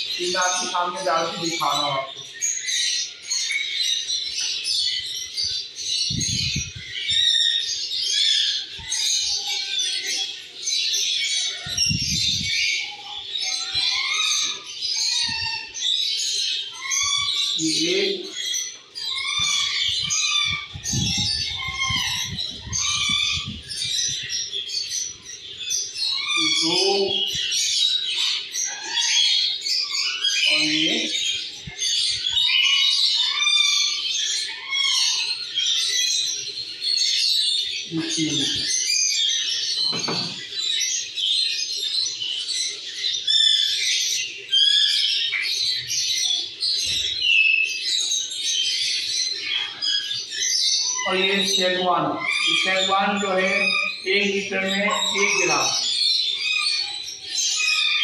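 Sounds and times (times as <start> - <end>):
small birds chirping chorus: 0.0 - 58.0.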